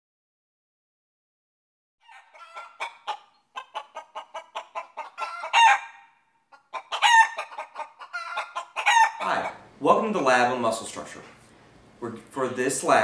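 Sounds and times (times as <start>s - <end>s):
chicken clucking: 2.0s - 9.7s
chicken drawn-out calls: 2.0s - 9.8s.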